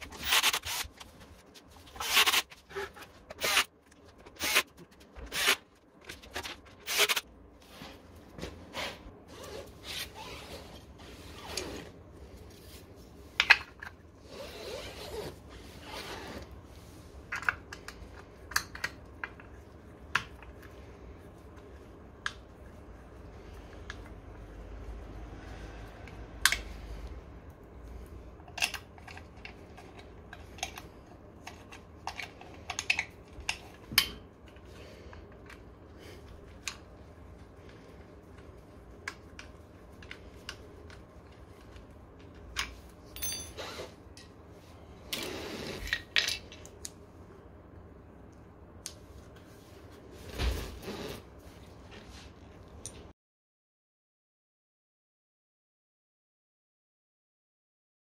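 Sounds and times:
metal tools clinking and knocking: 0:43.0 - 0:43.8
ringing metal clink: 0:43.2 - 0:43.6.

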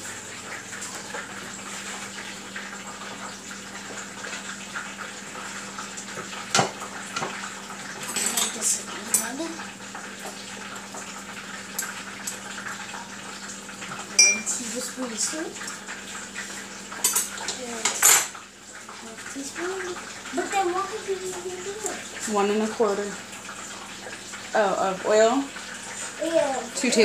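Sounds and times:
spoons and knife clattering on bowl: 0:08.0 - 0:09.4, 0:14.2 - 0:14.6.

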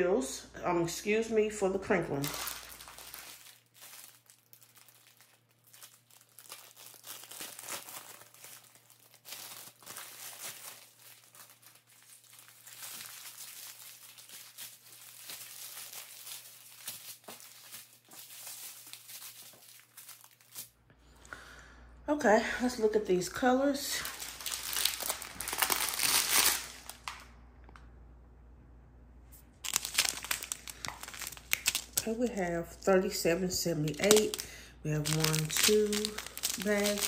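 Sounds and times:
plastic wrap crinkling: 0:01.8 - 0:20.8, 0:23.1 - 0:27.3, 0:29.4 - 0:37.0.

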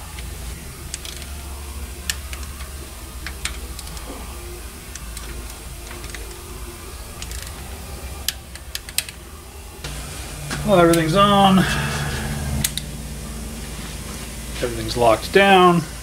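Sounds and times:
steady low hum: 0:00.0 - 0:16.0
metallic wrench clicks: 0:00.9 - 0:01.3, 0:02.0 - 0:04.1, 0:07.2 - 0:07.6, 0:08.2 - 0:09.2.

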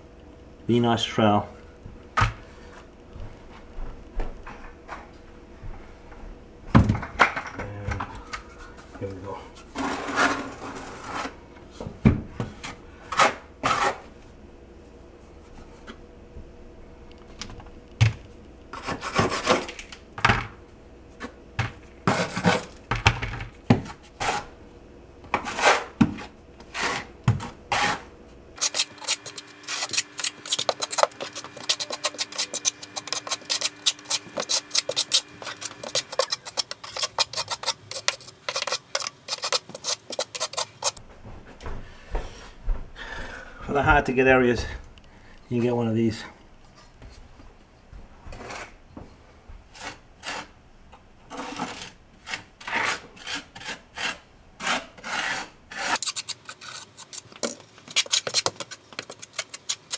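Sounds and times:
trowel scraping mortar: 0:09.8 - 0:11.4, 0:25.4 - 0:26.0, 0:26.7 - 0:41.0, 0:49.7 - 0:50.5, 0:51.3 - 0:59.9.

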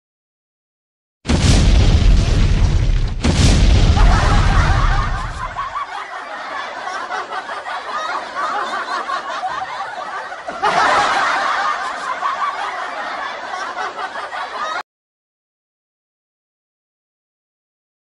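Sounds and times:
many people laughing: 0:03.8 - 0:14.8.

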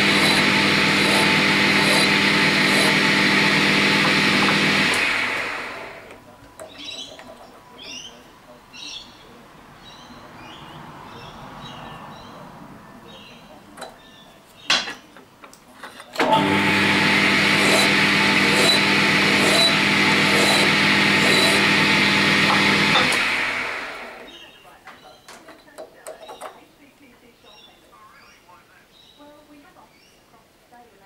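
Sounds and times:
small lathe running with ticking: 0:00.0 - 0:06.2, 0:16.2 - 0:24.3.

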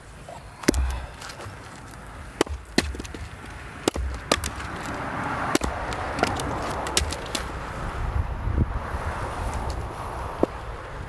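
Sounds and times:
wood pieces clacking: 0:00.6 - 0:07.6
axe splitting firewood: 0:00.6 - 0:07.7
rustle: 0:08.8 - 0:11.0.

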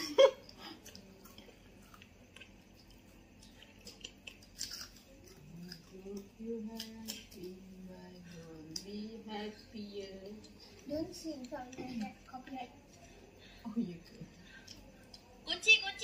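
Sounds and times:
people chewing crunchy chips: 0:00.4 - 0:07.6.

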